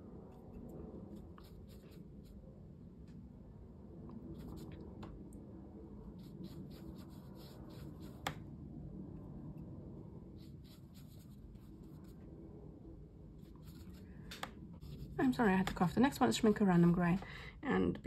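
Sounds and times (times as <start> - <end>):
scratchy paintbrush strokes: 0.1 - 2.6, 4.2 - 4.8, 6.0 - 8.4, 10.3 - 12.4, 13.4 - 17.0.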